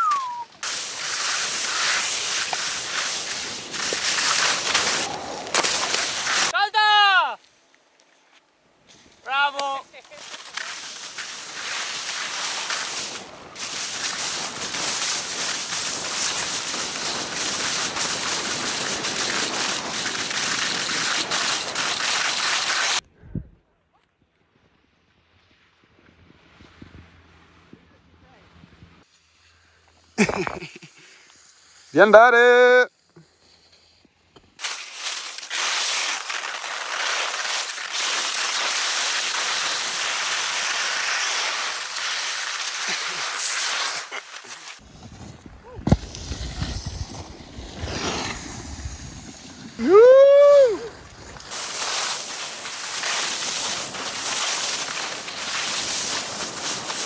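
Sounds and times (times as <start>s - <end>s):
skis running over snow: 0.0s - 6.6s, 9.3s - 23.0s, 30.2s - 31.2s, 34.6s - 57.0s
wind on microphone: 44.8s - 51.5s.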